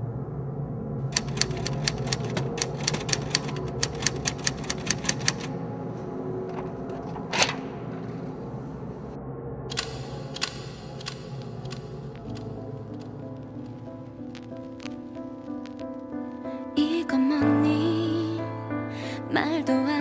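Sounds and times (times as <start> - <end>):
typewriter keys clacking: 1.1 - 5.5, 9.7 - 12.5.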